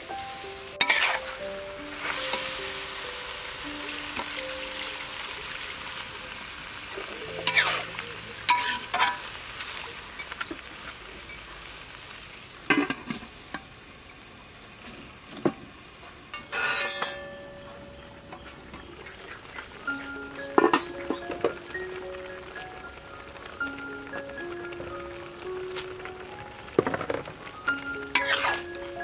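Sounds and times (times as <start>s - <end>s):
stir-fry sizzling in a wok: 0.0s - 29.0s
metal lid clattering on wok: 0.8s - 1.2s, 16.4s - 17.8s, 28.1s - 28.6s.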